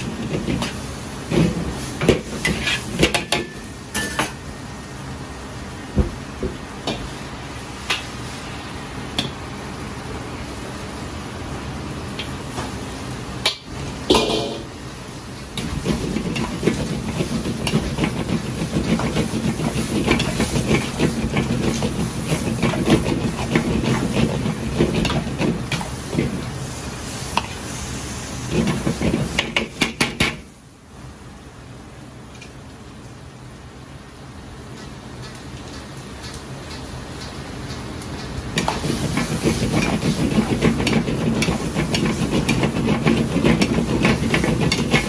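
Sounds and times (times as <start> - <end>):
sauce sizzling in a hot wok: 0.0 - 32.1, 33.5 - 45.0
metal ladle scraping a wok: 2.4 - 3.0.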